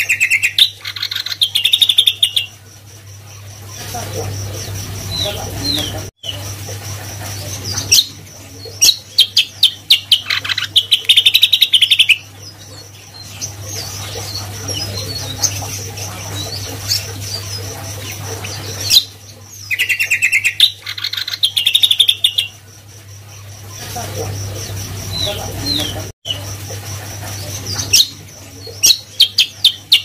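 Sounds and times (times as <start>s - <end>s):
bird chirps: 0.0s - 2.6s, 7.4s - 22.6s
songbird trilling: 0.0s - 2.6s, 7.7s - 22.6s.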